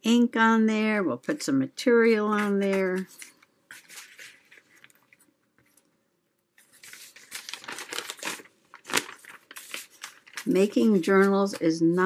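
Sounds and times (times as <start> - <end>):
paper rustling and crinkling: 2.3 - 5.9, 6.6 - 12.0.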